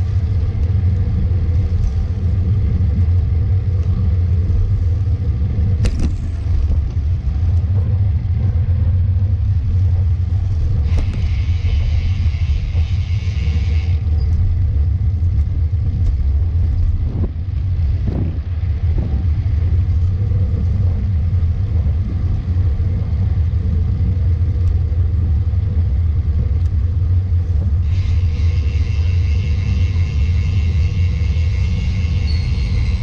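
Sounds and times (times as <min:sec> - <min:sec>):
wind buffeting microphone: 0:00.0 - 0:33.0
higher buzz: 0:27.8 - 0:33.0.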